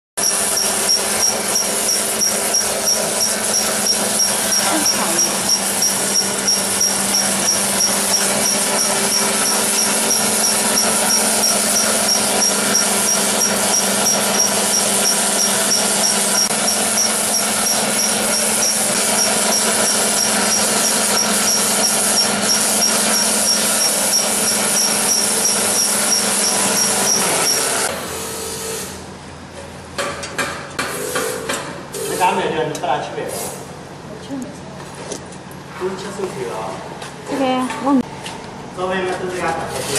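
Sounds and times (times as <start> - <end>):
grinding hiss: 0.2 - 27.9
motor hum: 0.2 - 28.9.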